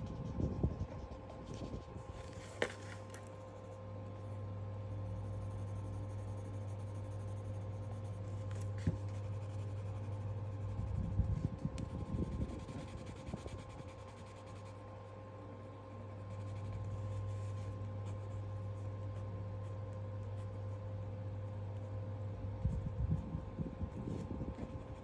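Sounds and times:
pencil scratching on paper: 0:05.2 - 0:14.8, 0:15.9 - 0:20.6.

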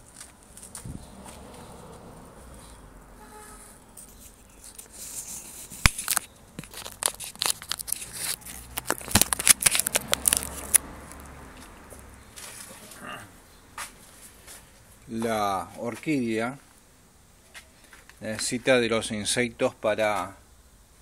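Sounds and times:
crackling and rustling clicks: 0:04.0 - 0:11.3.

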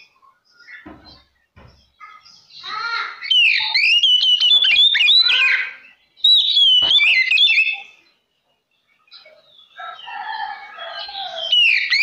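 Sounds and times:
bird singing whistled notes: 0:03.2 - 0:08.2, 0:08.8 - 0:12.0.

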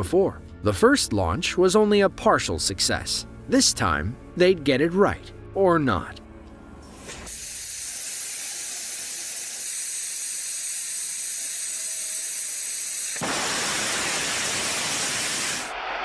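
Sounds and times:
gas venting hiss: 0:06.9 - 0:15.9
rocket engine rushing roar: 0:13.2 - 0:16.0.

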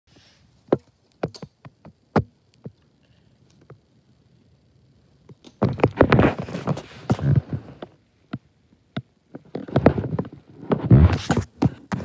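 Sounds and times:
sharp clicks and knocks: 0:00.7 - 0:02.8
rustling: 0:05.3 - 0:08.0.

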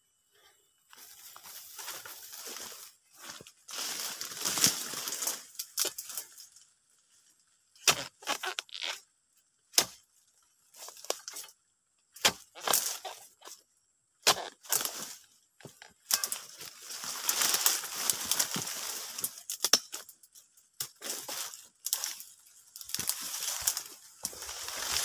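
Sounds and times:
dry palm fronds rustling: 0:00.9 - 0:08.9, 0:14.4 - 0:25.0
chisel chopping stalk: 0:09.7 - 0:10.0, 0:12.2 - 0:13.1, 0:14.2 - 0:14.9.

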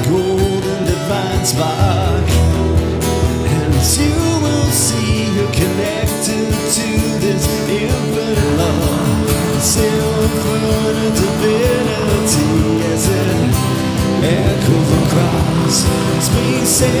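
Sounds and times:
guitar song with singing: 0:00.0 - 0:17.0.

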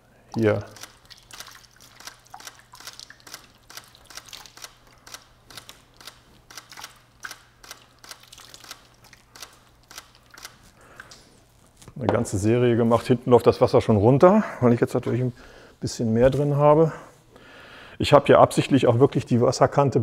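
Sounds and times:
water splashing on plastic: 0:00.4 - 0:11.2
camera shutter clicks: 0:00.7 - 0:10.6.

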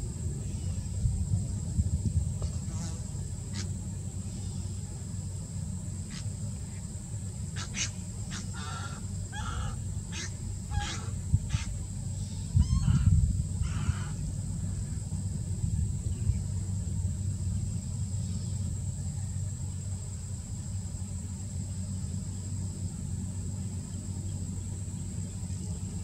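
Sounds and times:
wind rumble on microphone: 0:00.0 - 0:04.3, 0:09.4 - 0:19.6
osprey calling: 0:07.5 - 0:14.2.

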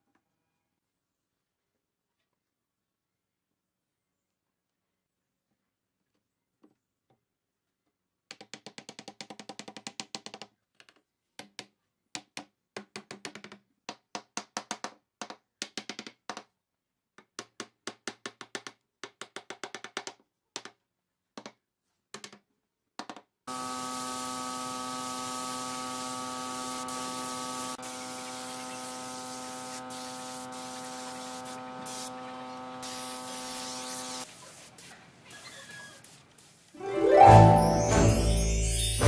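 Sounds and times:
rapid tapping on wood: 0:08.3 - 0:16.5.

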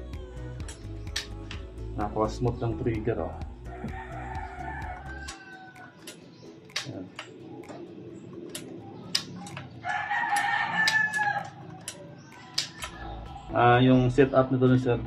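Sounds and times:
rooster crowing: 0:03.6 - 0:06.2, 0:09.4 - 0:13.1
air rifle trigger clicks: 0:06.0 - 0:07.4.

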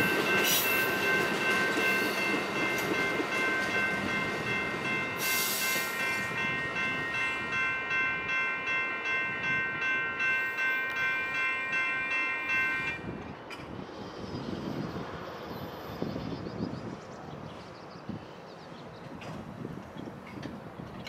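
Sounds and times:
railroad crossing bells ringing: 0:00.0 - 0:13.8.

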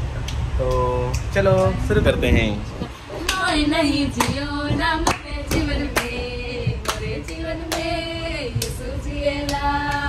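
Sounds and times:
train rumbling: 0:00.0 - 0:10.0
women singing together: 0:02.9 - 0:10.0
hands clapping: 0:03.2 - 0:03.5, 0:05.0 - 0:06.2, 0:06.8 - 0:07.9, 0:09.4 - 0:10.0.

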